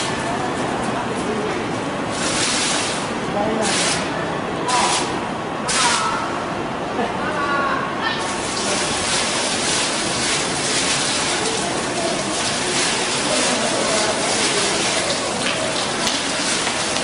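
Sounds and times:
fountain water splashing: 2.1 - 4.0, 8.2 - 17.0.

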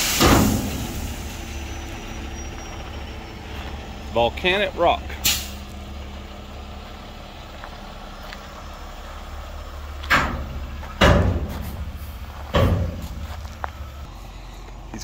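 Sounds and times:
loud bangs: 0.0 - 1.4, 10.1 - 13.3
cinders unloading from truck: 0.0 - 14.1
truck engine rumbling: 0.0 - 15.0.

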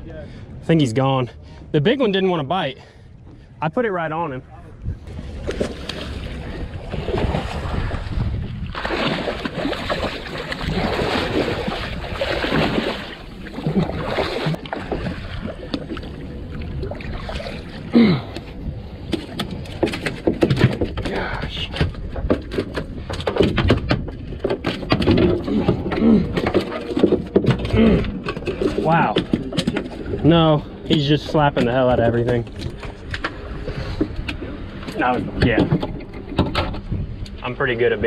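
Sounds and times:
rushing wind: 2.6 - 38.0
water rushing: 5.4 - 18.4.

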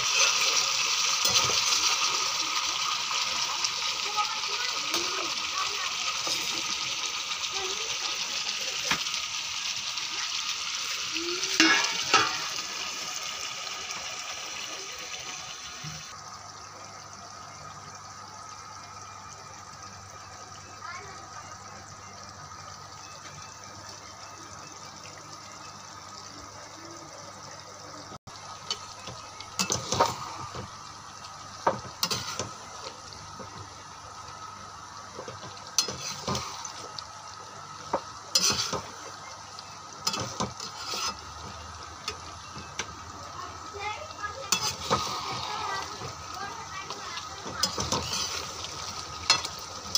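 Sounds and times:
curry sizzling in a frying pan: 0.0 - 49.9
spatula scraping a pan: 35.8 - 36.7, 38.3 - 39.0, 40.0 - 41.4, 44.5 - 46.2, 47.4 - 49.9.

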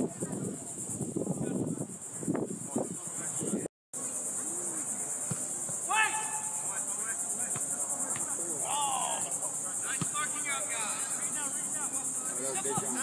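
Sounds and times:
pulsing insect chorus: 0.0 - 13.0
distant shouts: 5.7 - 13.0.

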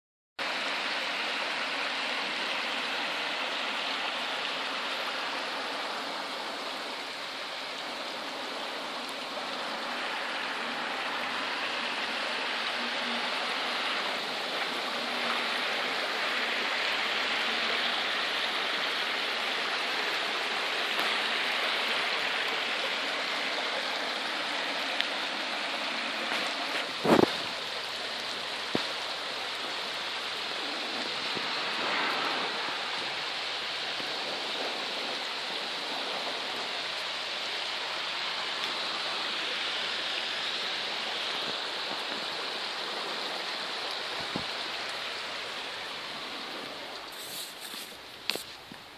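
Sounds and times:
floodwater rushing: 0.4 - 48.9.

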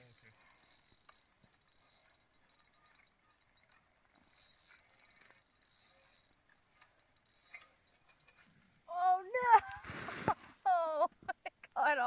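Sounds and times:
fishing reel ticking: 0.0 - 8.8.

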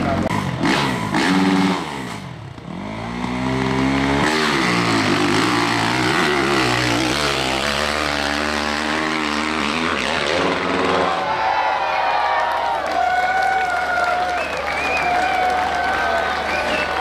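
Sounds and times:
motorcycle engine revving: 0.0 - 11.3.

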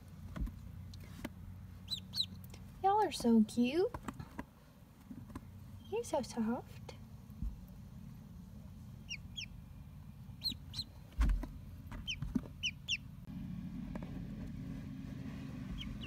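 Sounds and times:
steady low hum: 0.0 - 16.0
ducklings peeping: 1.7 - 2.6, 8.8 - 13.2, 15.6 - 16.0.

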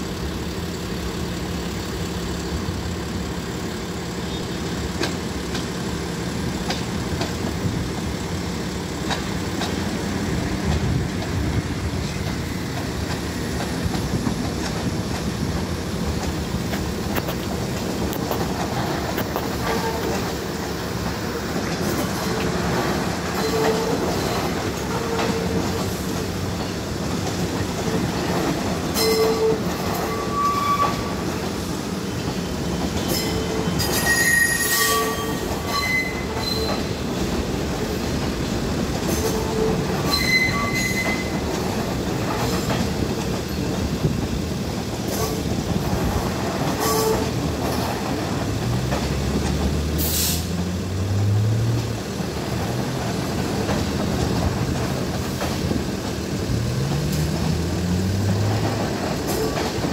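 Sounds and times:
train low rumble and hum: 0.0 - 59.9
wheels clicking over rail joints: 4.3 - 59.9
wheel squeals: 23.3 - 26.8, 27.8 - 37.1, 39.0 - 41.7.

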